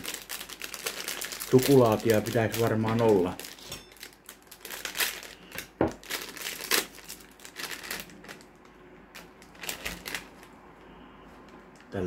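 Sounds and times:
plastic wrapper crinkling: 0:00.0 - 0:10.6.

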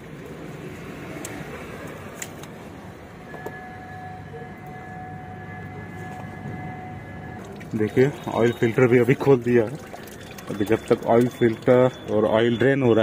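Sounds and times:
faint steady whine: 0:03.1 - 0:08.4
oil draining into a pan: 0:07.4 - 0:12.5.

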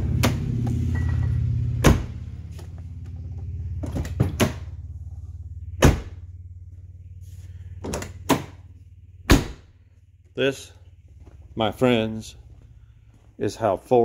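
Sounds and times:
steady low hum: 0:00.0 - 0:14.0
car door shutting with a thud: 0:01.8 - 0:02.2, 0:09.3 - 0:09.6.

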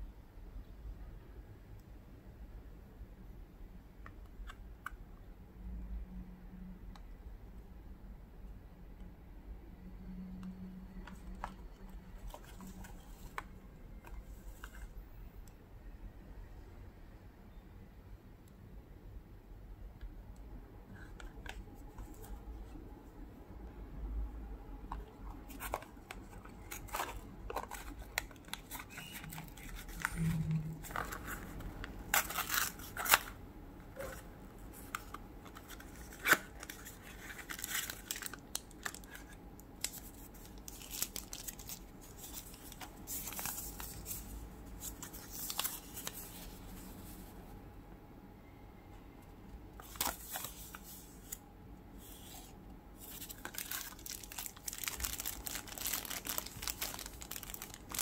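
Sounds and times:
plastic bag crinkling: 0:34.0 - 0:39.2, 0:39.8 - 0:44.2, 0:53.0 - 0:58.0
paper rustling: 0:34.0 - 0:47.2, 0:49.8 - 0:51.4, 0:52.0 - 0:58.0.

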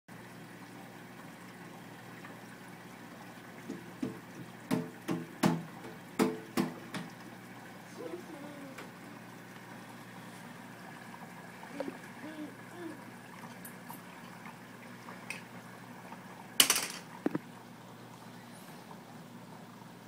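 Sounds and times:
aquarium equipment hum: 0:00.1 - 0:20.0
moving water: 0:00.1 - 0:20.0
sharp knocks: 0:03.7 - 0:07.1.

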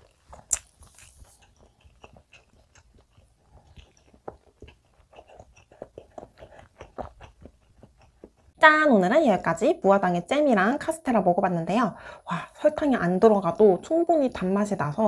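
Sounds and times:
chewing with wet mouth clicks: 0:00.0 - 0:08.6.

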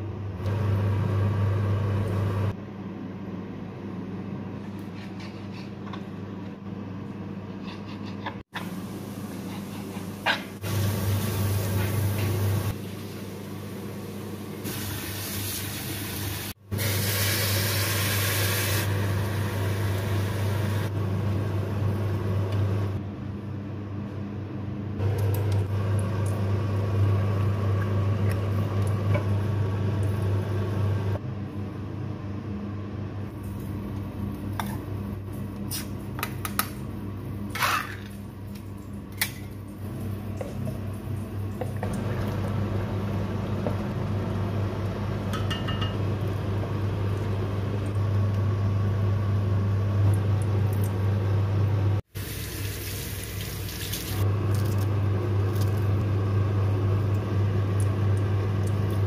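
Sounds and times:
steady low hum: 0:18.8 - 0:52.1.

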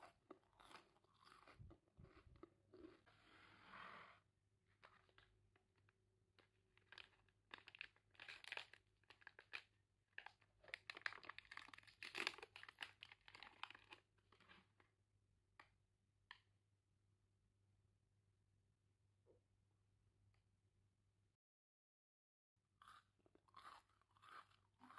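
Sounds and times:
plastic wrapper crinkling: 0:06.8 - 0:14.4.

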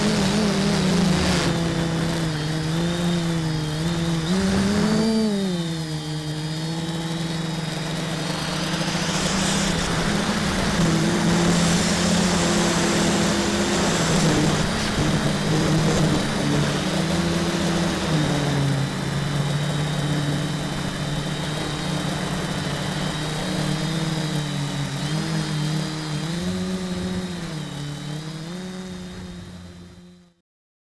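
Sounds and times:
drone motors and propellers buzzing: 0:00.0 - 0:30.4
steady rushing hiss: 0:06.2 - 0:30.0.

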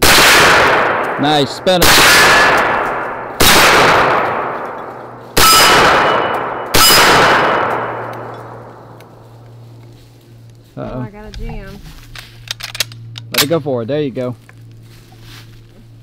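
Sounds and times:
rifle shots with echo: 0:00.0 - 0:09.0
steel targets ringing: 0:05.4 - 0:08.7.

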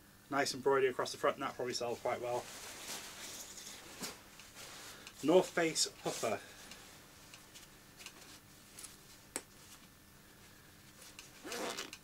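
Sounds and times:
jacket rustling: 0:01.8 - 0:09.9, 0:10.9 - 0:12.0.

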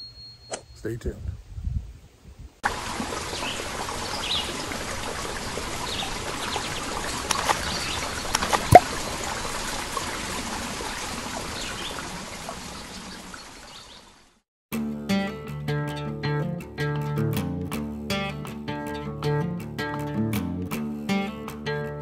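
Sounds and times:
water plop: 0:02.6 - 0:13.4
water trickling: 0:02.6 - 0:14.3.

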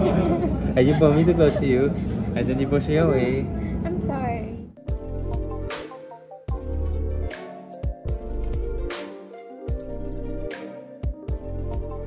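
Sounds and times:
music with beat and deep bass: 0:04.8 - 0:12.0.

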